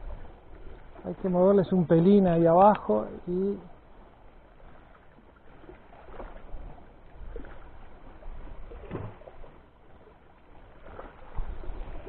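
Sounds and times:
water lapping against rocks: 0.0 - 12.0
water splashes: 0.0 - 12.0
wind on microphone: 10.8 - 12.0.

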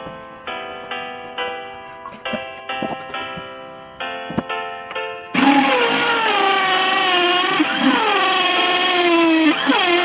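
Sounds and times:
electric drill boring wood: 5.3 - 10.0.

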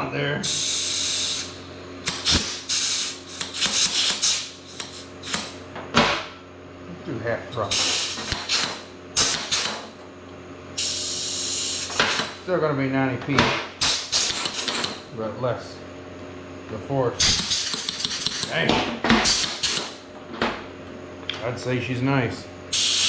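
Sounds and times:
compressed air hissing: 0.4 - 5.6, 7.7 - 9.8, 10.8 - 12.2, 13.8 - 14.8, 17.2 - 18.5, 19.2 - 20.0, 22.7 - 23.0.

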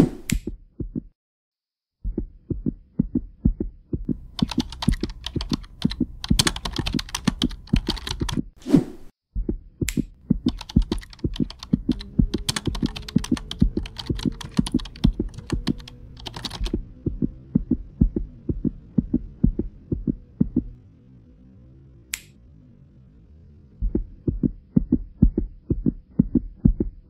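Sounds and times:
low hum: 2.1 - 27.0
keyboard typing clicks: 4.1 - 8.4, 9.9 - 16.8.

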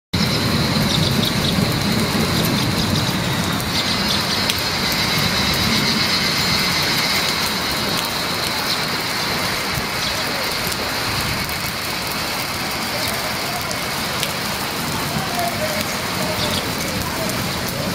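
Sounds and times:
low rumble: 0.2 - 13.0
heavy rain pouring: 0.2 - 17.9.

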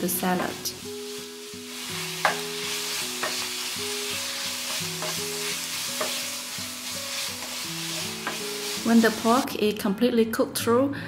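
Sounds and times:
meat sizzling in a frying pan: 0.0 - 9.4
soft background music: 0.0 - 11.0
spatula tapping a pan: 2.2 - 2.5, 3.2 - 3.6, 4.4 - 6.3, 8.2 - 8.6.

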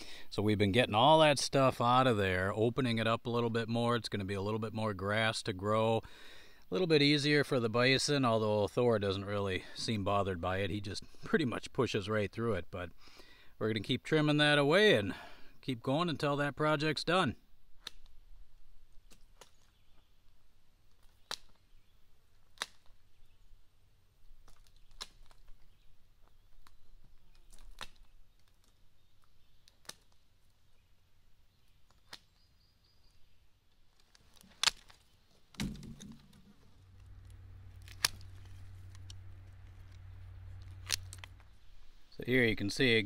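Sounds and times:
loppers snipping stems: 34.0 - 41.9
dull thump: 35.5 - 36.8
low steady hum: 35.5 - 43.0.

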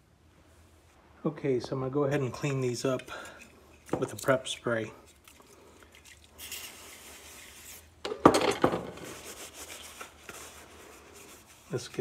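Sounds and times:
cloth rubbing on plastic: 9.0 - 12.0.

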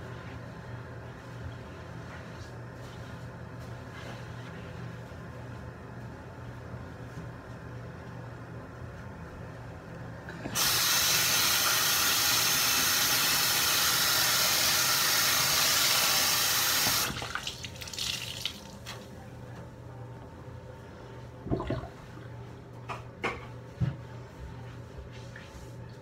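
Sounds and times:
water pouring into sink: 15.1 - 18.9.

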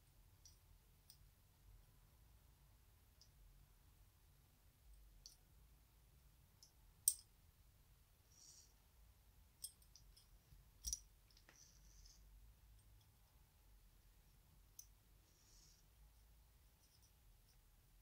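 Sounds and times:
soft scrapes: 11.4 - 12.3.

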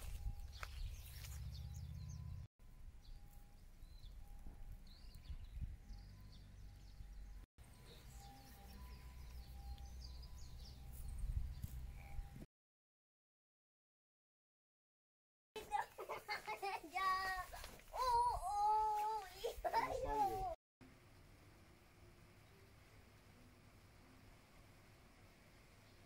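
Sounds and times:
small birds chirping: 0.0 - 12.4
wind rumble on microphone: 4.1 - 6.2, 11.0 - 12.4.

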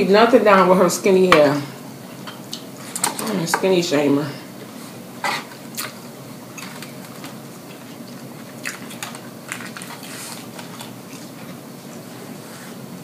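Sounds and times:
low room hum: 0.0 - 13.0
chewing with mouth smacks: 5.7 - 12.0.

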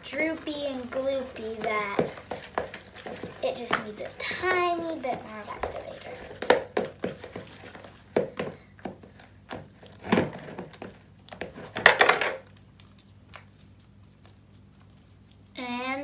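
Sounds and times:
hands squelching slime in bowl: 0.0 - 16.0.

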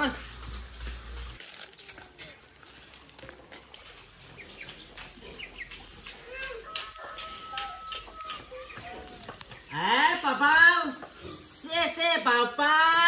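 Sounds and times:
birds chirping: 3.0 - 11.0.

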